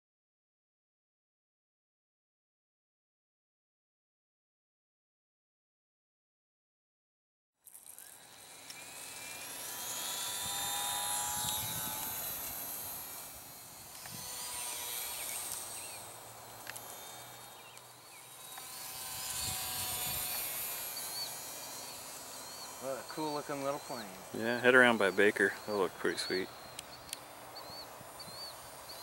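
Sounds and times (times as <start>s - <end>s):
electric model plane whine: 7.6s - 29.0s.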